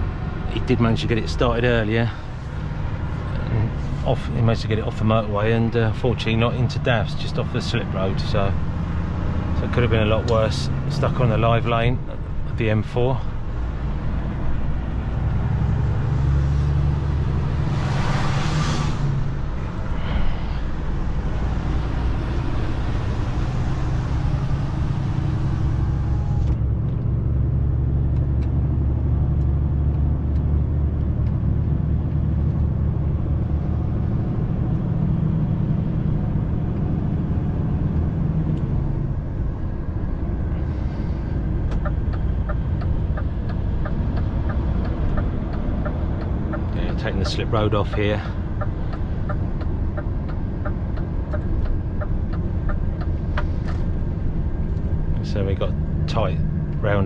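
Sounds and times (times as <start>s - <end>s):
diesel engine droning: 0.0s - 57.0s
turn indicator ticking: 27.9s - 34.9s, 41.3s - 57.0s.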